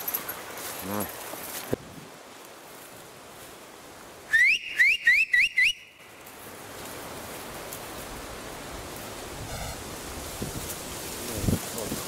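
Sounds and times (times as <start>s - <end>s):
man whistling short notes: 4.3s - 5.8s.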